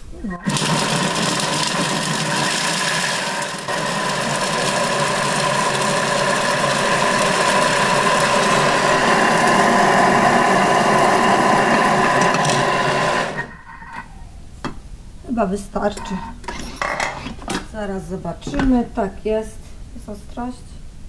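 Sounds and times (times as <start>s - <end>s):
food processor motor whining: 0.4s - 14.1s.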